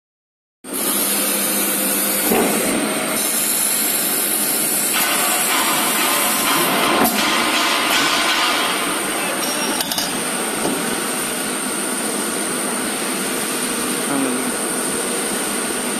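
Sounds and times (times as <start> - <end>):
glass drilling machine hissing: 0.7 - 2.3.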